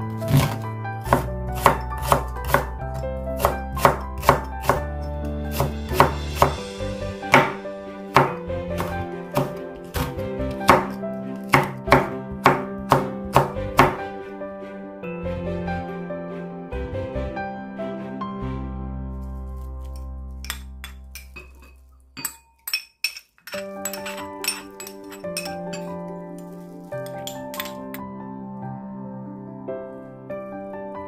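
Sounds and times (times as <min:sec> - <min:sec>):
background music: 0:00.0 - 0:22.8, 0:23.4 - 0:31.0
knife chopping on cutting board: 0:00.3 - 0:02.7, 0:03.4 - 0:04.9, 0:05.5 - 0:06.6, 0:07.3 - 0:14.0.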